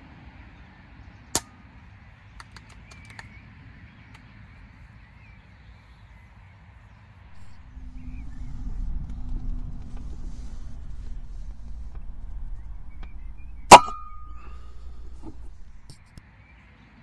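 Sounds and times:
low rumble: 0:07.3 - 0:16.1.

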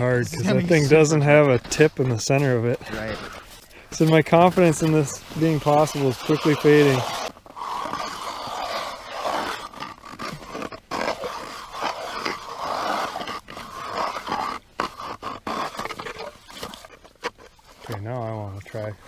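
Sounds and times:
ice auger grinding through ice: 0:02.8 - 0:17.9.

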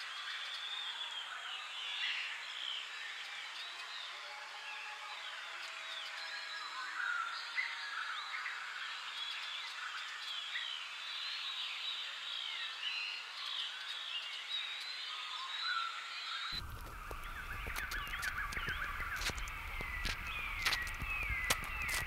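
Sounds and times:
small birds chirping: 0:09.1 - 0:22.0
steady hiss: 0:16.6 - 0:22.0.

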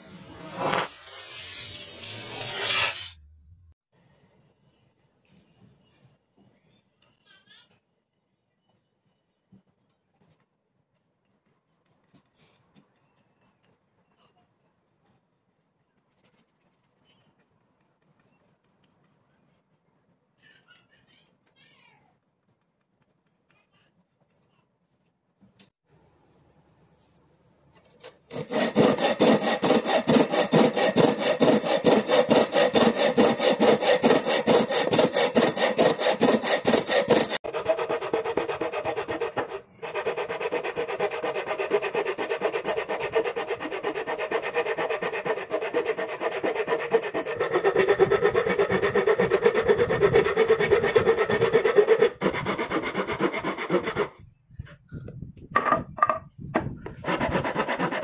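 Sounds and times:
hand saw cutting wood: 0:00.4 - 0:03.2, 0:28.0 - 0:54.2, 0:57.0 - 0:58.0.

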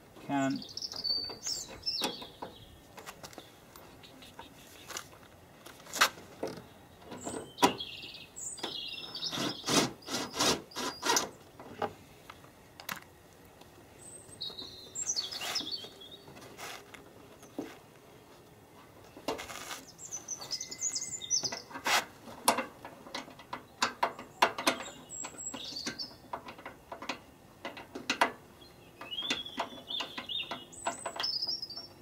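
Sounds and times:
small birds chirping: 0:00.3 - 0:05.2, 0:06.6 - 0:11.2, 0:13.9 - 0:16.6, 0:18.2 - 0:21.8, 0:23.6 - 0:27.2, 0:28.5 - 0:32.0.

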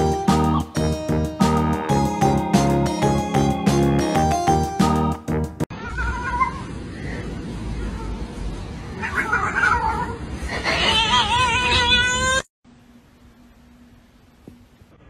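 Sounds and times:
cat meowing: 0:09.0 - 0:12.5.

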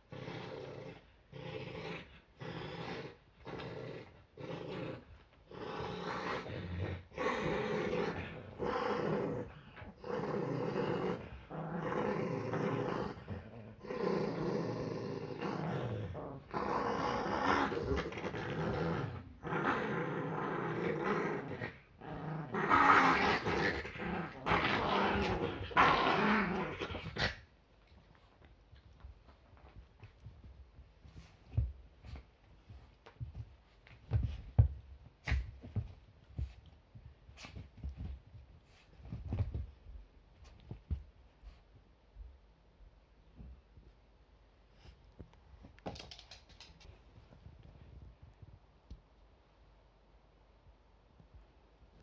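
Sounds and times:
small dog growling: 0:00.1 - 0:27.4.

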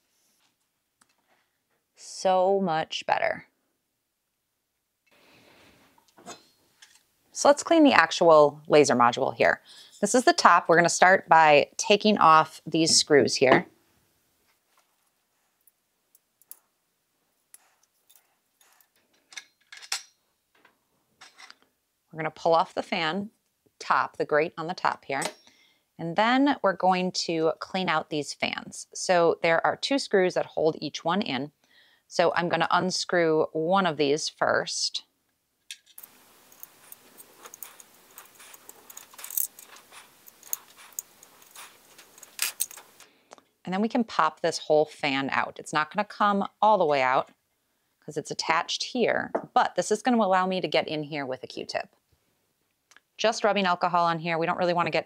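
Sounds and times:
screwdriver and screws clicking: 0:35.8 - 0:43.0.

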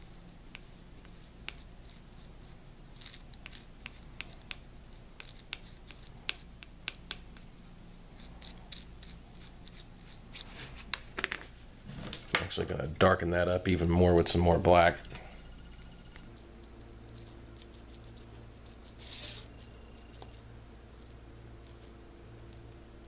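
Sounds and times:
low steady hum: 0:00.0 - 0:23.0
paintbrush scratching: 0:00.5 - 0:07.5, 0:08.2 - 0:10.9, 0:16.3 - 0:23.0.

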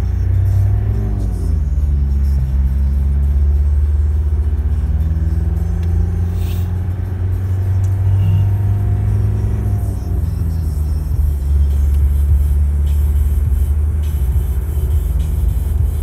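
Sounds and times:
car engine and tyre rumble: 0:00.0 - 0:16.0.

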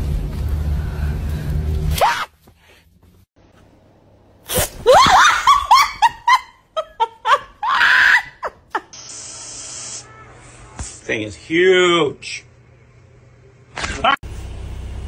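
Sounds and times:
spray bottle hissing: 0:08.9 - 0:10.0.

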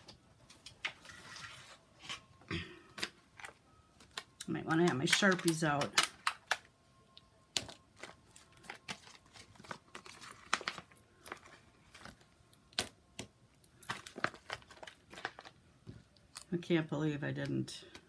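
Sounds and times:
paper rustling: 0:08.0 - 0:12.2.

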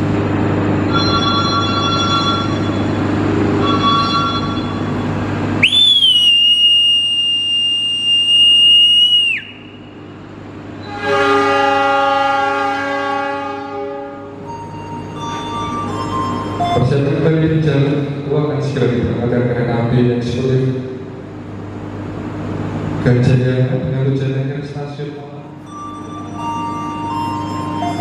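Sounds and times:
mouth whistle blast: 0:05.6 - 0:09.9
locomotive horn chord: 0:10.7 - 0:16.8.

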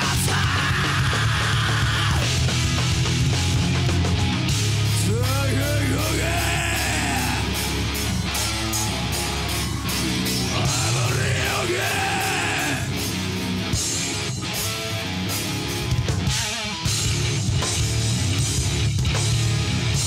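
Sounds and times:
yelled vocals: 0:00.0 - 0:02.8, 0:04.8 - 0:13.4
distorted electric guitars: 0:00.0 - 0:20.0
drum kit: 0:00.0 - 0:20.0.

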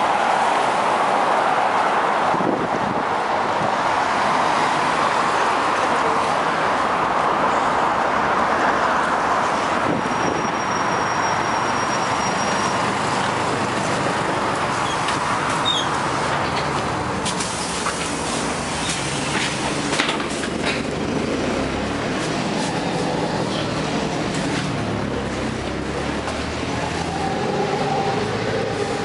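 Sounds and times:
roadway traffic noise: 0:00.0 - 0:29.0.

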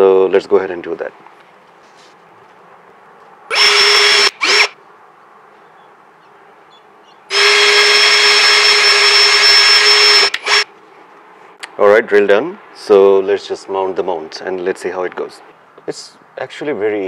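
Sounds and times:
drill boring into wood: 0:03.5 - 0:04.8, 0:07.3 - 0:10.7.

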